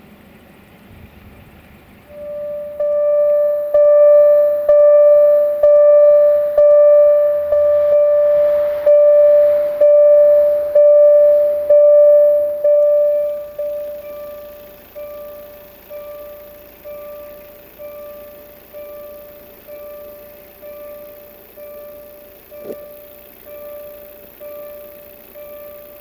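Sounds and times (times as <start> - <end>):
level crossing bell ringing: 2.2 - 26.0.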